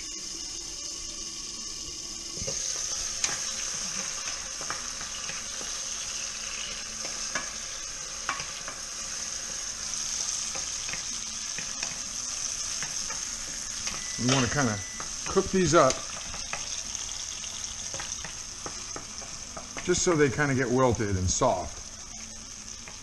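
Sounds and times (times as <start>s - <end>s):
tomatoes and garlic sizzling in oil: 0.0s - 23.0s.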